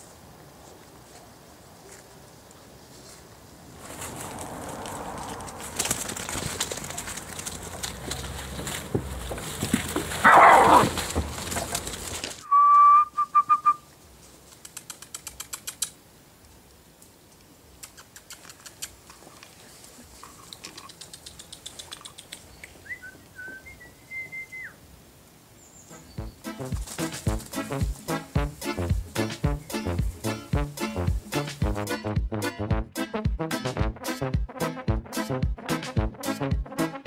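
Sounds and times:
high whistled notes: 0:12.4 - 0:13.9, 0:22.8 - 0:24.8
faint ticks: 0:14.5 - 0:19.6, 0:20.2 - 0:22.8.

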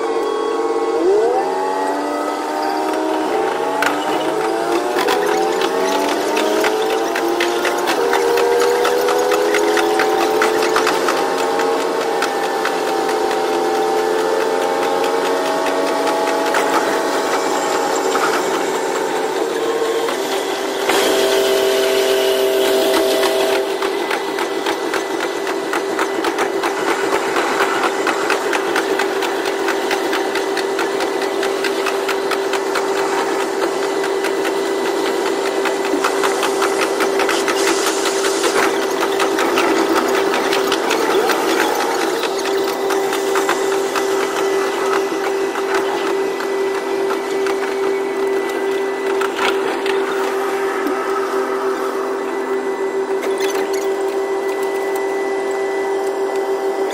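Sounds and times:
railcar engine hum: 0:00.0 - 0:56.9
fast rattle of clicks: 0:02.8 - 0:21.3, 0:22.9 - 0:50.6.

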